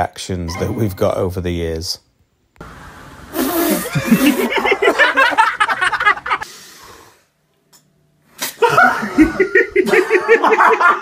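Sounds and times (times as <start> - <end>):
man laughing and spluttering: 3.6 - 5.4, 8.5 - 11.0.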